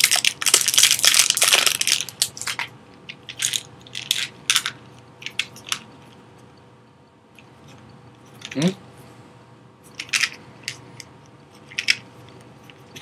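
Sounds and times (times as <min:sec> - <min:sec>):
package wrapping crinkling: 0:00.0 - 0:02.7.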